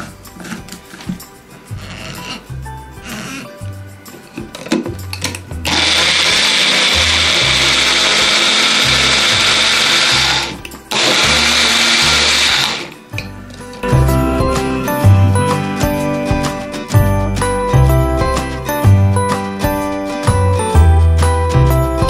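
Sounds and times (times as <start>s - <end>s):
blender motor running: 5.6s - 13.0s.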